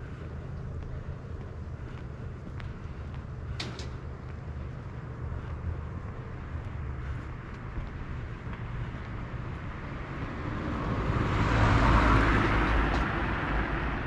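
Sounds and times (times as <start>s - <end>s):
car passing by: 9.4s - 14.0s.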